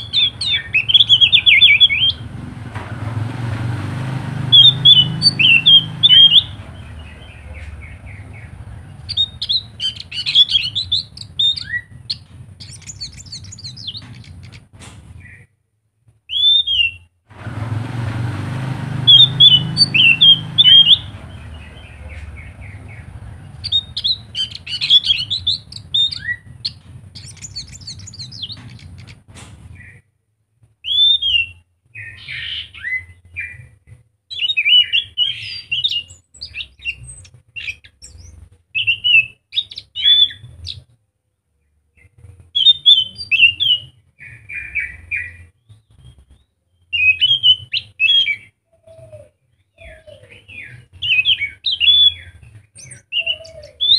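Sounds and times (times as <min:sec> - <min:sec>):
thrush singing: 0:00.0 - 0:14.6, 0:17.3 - 0:29.3
low rumble: 0:06.0 - 0:15.3, 0:20.9 - 0:29.8.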